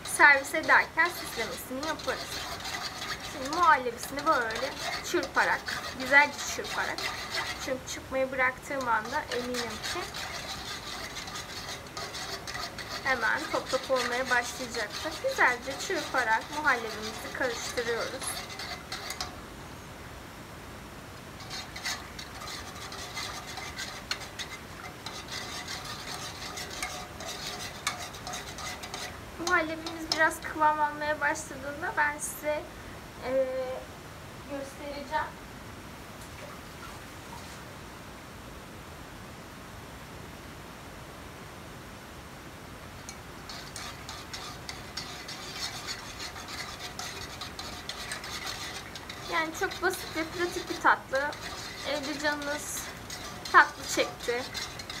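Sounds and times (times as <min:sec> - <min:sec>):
wire whisk scraping a saucepan: 0:00.0 - 0:19.4, 0:21.4 - 0:31.6, 0:43.0 - 0:55.0
faint steady hiss: 0:00.0 - 0:55.0.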